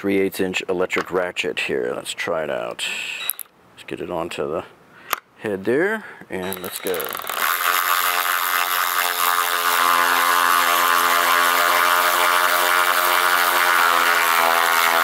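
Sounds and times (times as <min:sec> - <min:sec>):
cordless ratchet motor whine: 0:03.2 - 0:03.5, 0:06.4 - 0:15.0.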